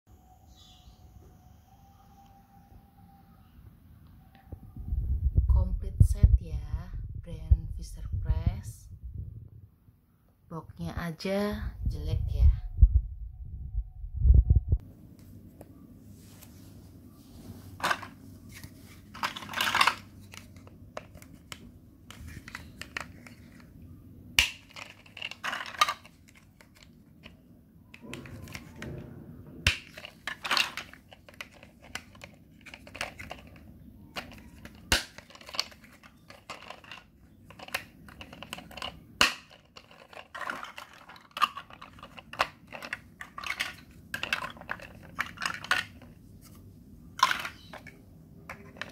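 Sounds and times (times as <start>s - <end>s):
plastic blocks clattering: 17.8s - 23.7s, 24.4s - 27.4s, 29.6s - 46.2s, 47.2s - 48.9s.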